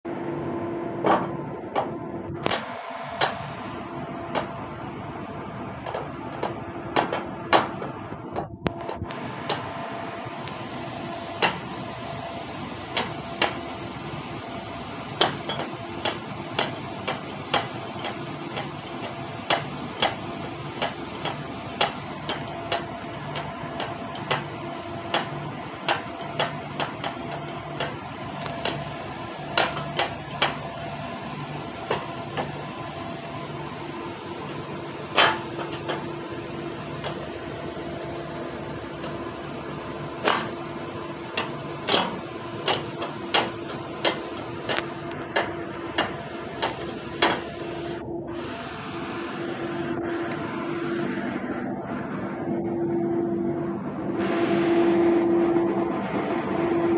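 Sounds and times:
deck machinery hum: 0:00.0 - 0:56.9
sharp metal knocks and clanks: 0:15.2 - 0:20.2, 0:40.2 - 0:40.6, 0:41.4 - 0:47.5.

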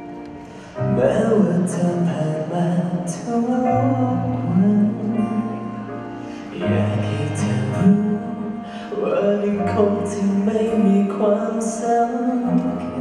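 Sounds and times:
musical accompaniment: 0:00.0 - 0:13.0
man singing into microphone: 0:00.6 - 0:05.9, 0:06.5 - 0:13.0.

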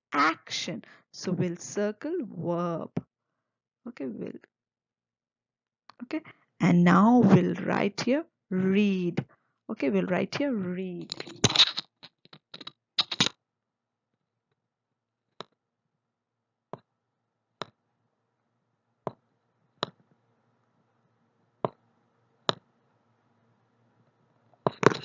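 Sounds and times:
sharp clicks: 0:11.0 - 0:13.3.

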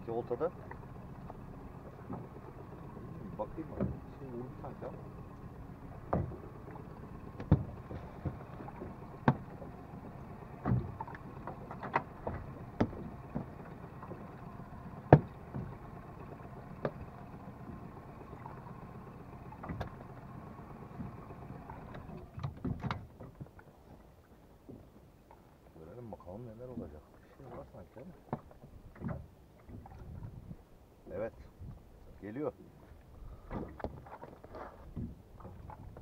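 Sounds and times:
steady low hum: 0:00.0 - 0:23.7
knocks and slaps on boat: 0:00.0 - 0:24.0, 0:24.6 - 0:25.4, 0:26.6 - 0:30.6, 0:33.4 - 0:36.0.

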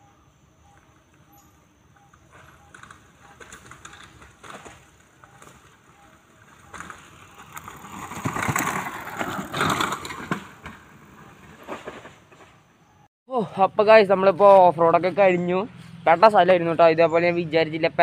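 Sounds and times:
bike tyres rolling on dirt trail: 0:00.6 - 0:13.0.

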